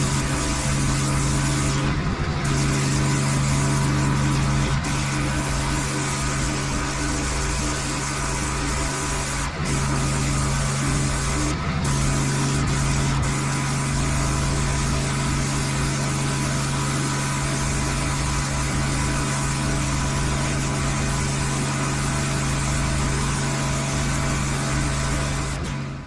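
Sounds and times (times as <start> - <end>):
pressure washer engine hum: 0.0 - 26.0
water spray hissing: 2.4 - 22.6.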